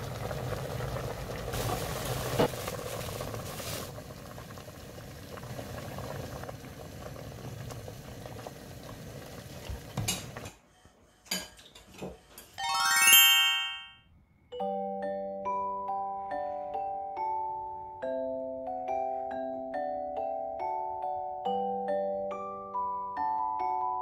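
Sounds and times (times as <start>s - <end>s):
stew bubbling in a pot: 0.0s - 10.4s.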